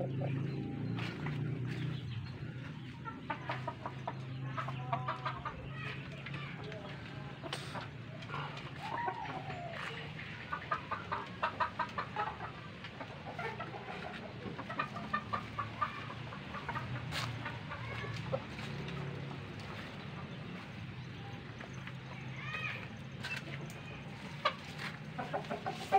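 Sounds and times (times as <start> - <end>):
chickens clucking: 0.0 - 25.9
chicken drawn-out call: 7.4 - 20.5, 22.3 - 25.9.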